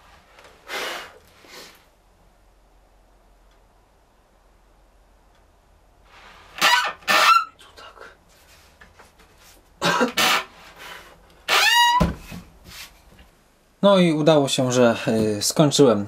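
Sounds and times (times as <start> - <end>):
wood squeaking against wood: 6.6 - 7.6, 10.1 - 10.6, 11.5 - 12.3.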